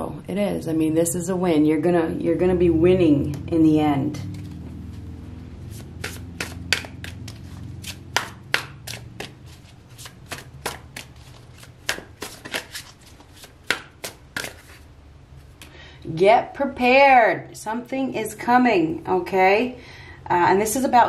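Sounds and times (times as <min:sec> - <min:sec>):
cards being shuffled: 0:04.3 - 0:15.6.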